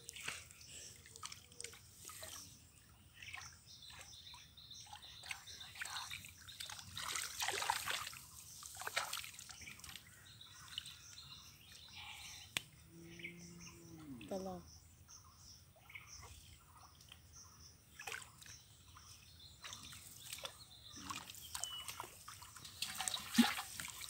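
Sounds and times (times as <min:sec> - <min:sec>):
hands splashing in water: 0:06.6 - 0:10.0, 0:22.7 - 0:24.0.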